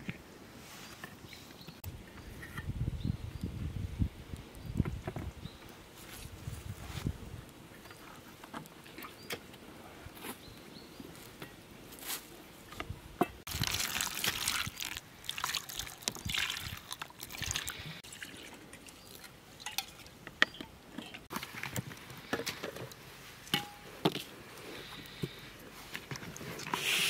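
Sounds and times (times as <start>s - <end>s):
liquid trickling and dripping: 13.5s - 20.1s.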